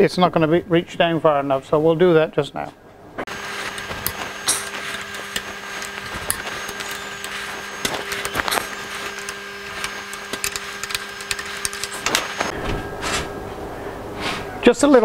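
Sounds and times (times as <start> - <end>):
machine hum: 3.2 - 14.2
metallic clicks and scrapes: 3.3 - 12.5.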